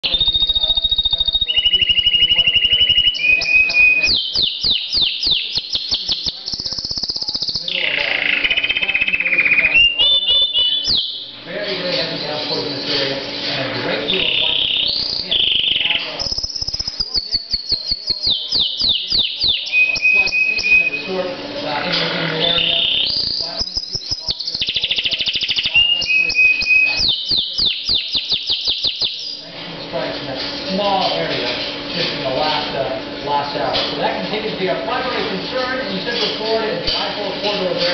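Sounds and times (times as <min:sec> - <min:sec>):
canary singing trills: 0:00.0 - 0:29.5.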